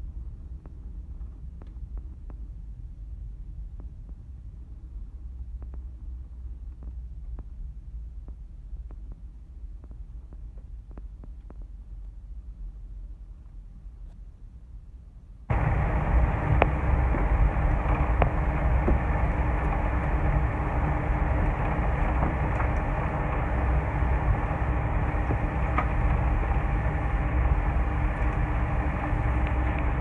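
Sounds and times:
aircraft cabin rumble: 15.5 - 30.0
faint steady tone: 15.5 - 30.0.

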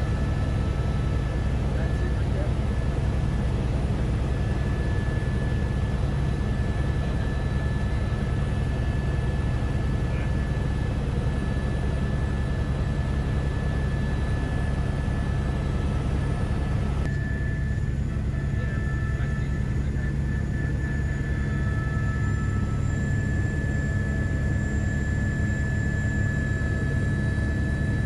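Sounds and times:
helicopter cabin rumble: 0.0 - 28.0
high whine: 17.0 - 28.0.

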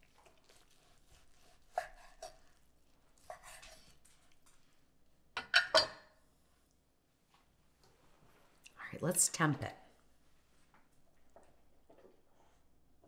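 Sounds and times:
knife cutting meat on wooden board: 0.5 - 2.5.

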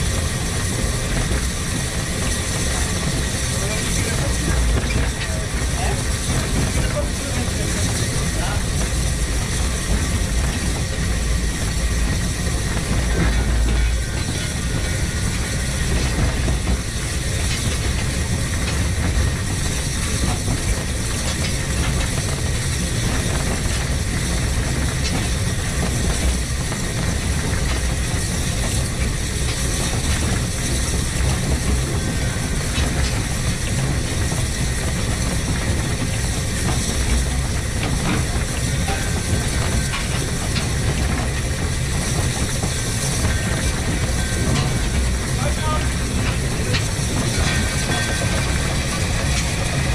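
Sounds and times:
steam locomotive rumbling: 0.0 - 49.9.

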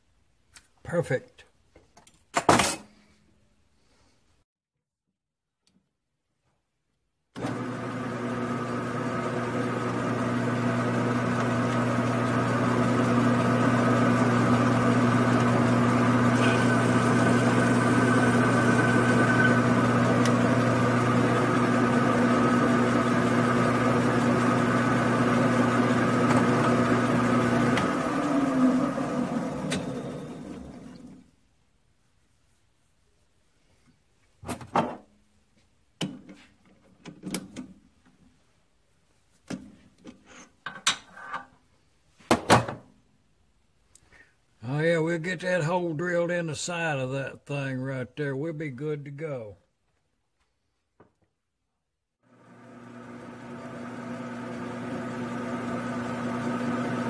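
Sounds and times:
metal lathe humming: 7.4 - 31.2, 52.3 - 57.0
spindle winding down: 7.4 - 31.2.

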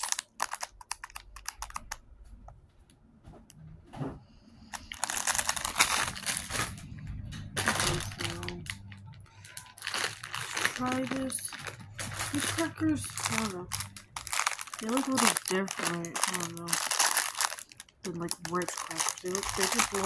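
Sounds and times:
plastic wrapper crinkling: 0.0 - 2.2, 4.6 - 20.0
fingertips tapping plastic: 0.0 - 2.6.

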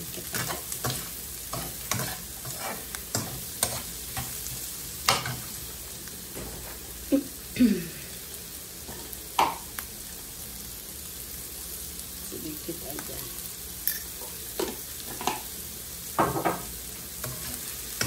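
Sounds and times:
food sizzling in a wok: 0.0 - 18.0
metal spatula scraping and clinking: 0.2 - 5.5, 17.2 - 18.0.

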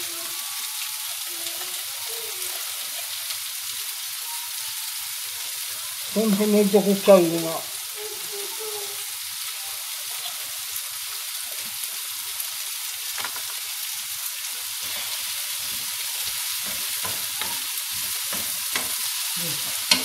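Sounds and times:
vegetables sizzling in a frying pan: 0.0 - 20.0.

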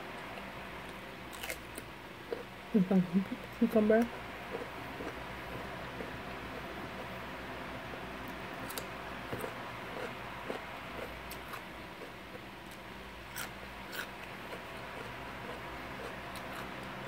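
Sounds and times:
cucumber crunching: 0.4 - 2.5, 8.2 - 17.0.

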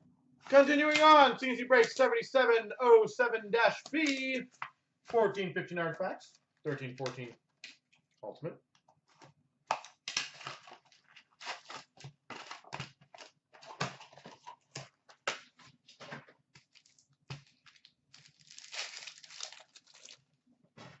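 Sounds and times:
cardboard and wrapper ripping: 9.7 - 14.5, 16.6 - 20.3
foil pack tearing: 10.2 - 13.3, 16.7 - 20.3
packs rustling: 10.4 - 21.0.

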